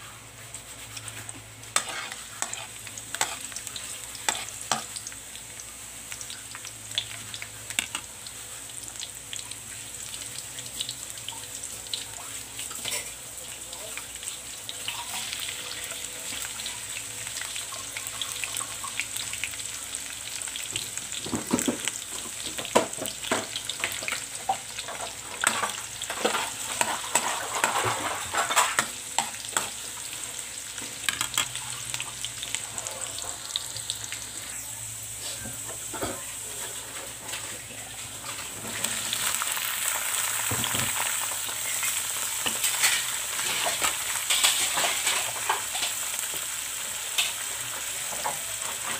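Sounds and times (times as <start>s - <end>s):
garlic and onions sizzling in oil: 0.0s - 48.9s
spatula scraping a wok: 0.4s - 4.9s, 24.9s - 28.9s.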